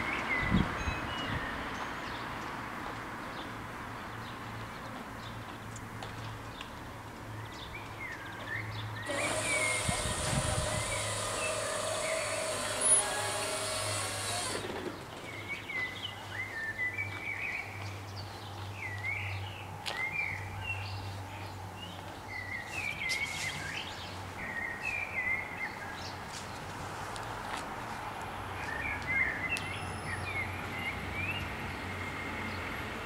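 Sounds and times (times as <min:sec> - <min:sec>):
birds chirping: 0:07.4 - 0:26.6
barrier drive whine: 0:09.0 - 0:15.2.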